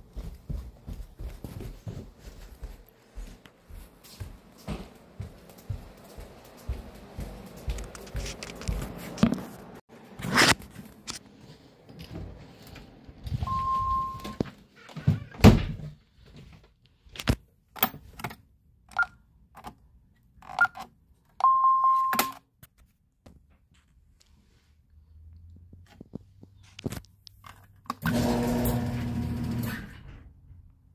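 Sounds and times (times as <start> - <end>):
alarm keypad beeps: 13.4 - 14.4, 21.4 - 22.4.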